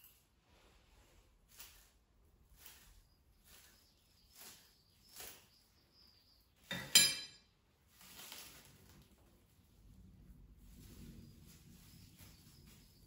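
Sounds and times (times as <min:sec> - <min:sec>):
plastic film crinkling: 0:07.8 - 0:09.6.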